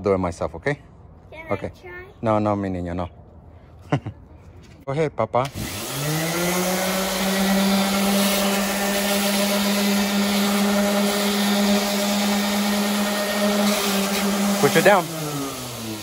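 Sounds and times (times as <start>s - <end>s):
orbit sander sanding wood: 5.5s - 16.0s.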